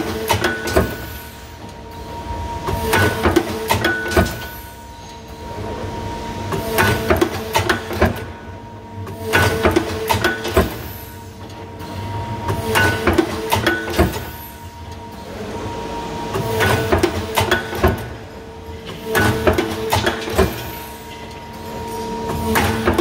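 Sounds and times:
machine punching metal plate: 0.0 - 1.2, 2.6 - 4.6, 6.5 - 8.3, 9.0 - 11.0, 12.4 - 14.4, 16.3 - 18.2, 18.8 - 21.0, 22.3 - 23.0
steady machine hum: 0.0 - 23.0.

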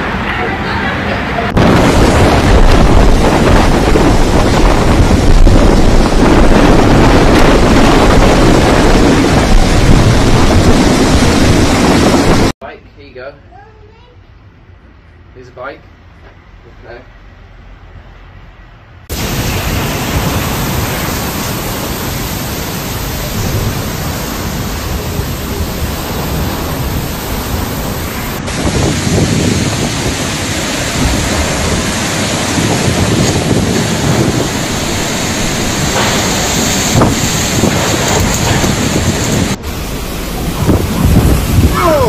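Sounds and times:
heavy rain: 0.0 - 12.6, 19.1 - 42.0
wind buffeting microphone: 0.0 - 12.6, 19.1 - 42.0.

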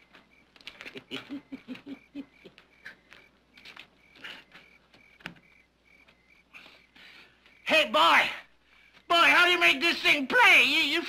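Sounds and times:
crickets chirping: 0.0 - 11.0
man chuckling: 0.7 - 3.0.

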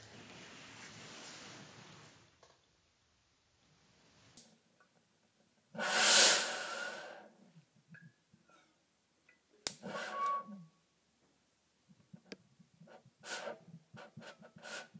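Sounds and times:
rushing whoosh of burning vapour: 5.8 - 7.2
faint whistle: 10.0 - 10.8.

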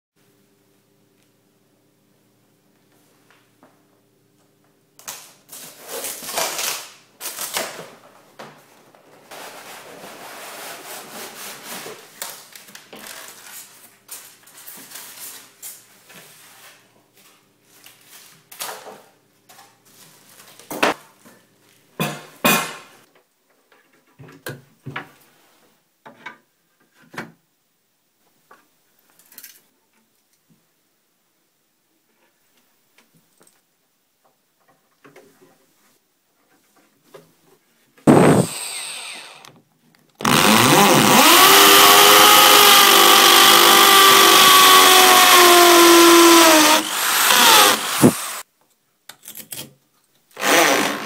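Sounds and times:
polystyrene packing crunching: 5.5 - 7.8.

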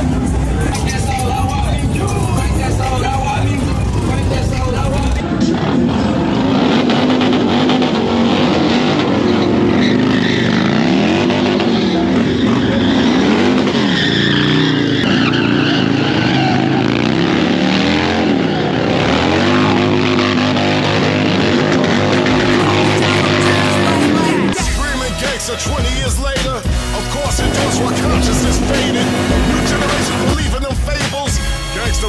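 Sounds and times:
motorcycle engines revving: 0.0 - 32.0
tyres screeching: 6.5 - 25.8, 26.4 - 30.5.

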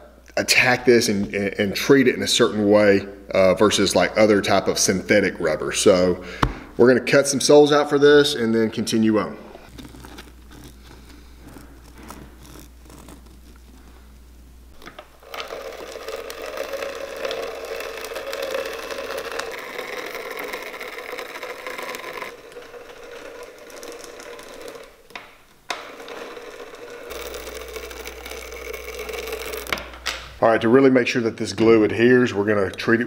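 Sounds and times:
rotary blade cutting rubber: 9.6 - 14.2, 14.8 - 30.1.

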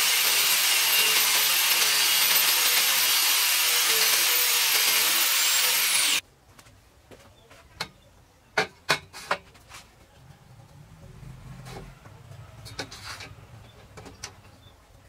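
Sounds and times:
angle grinder cutting steel: 0.0 - 6.2.

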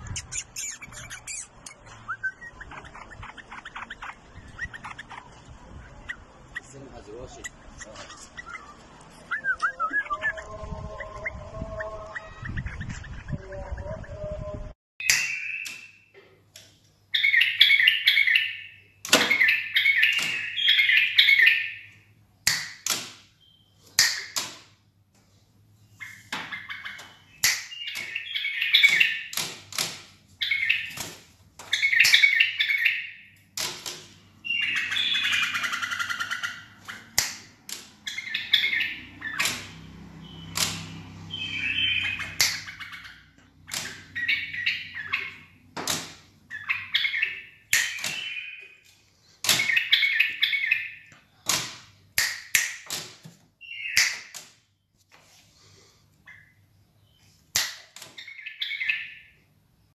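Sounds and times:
bird warbling: 0.0 - 14.3
sharp clicks: 40.5 - 40.9.

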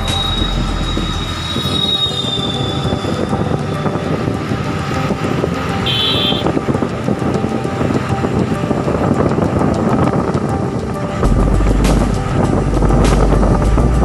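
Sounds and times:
high thin squeal: 0.0 - 4.1
vehicle ride rumble and rattle: 0.0 - 14.0.

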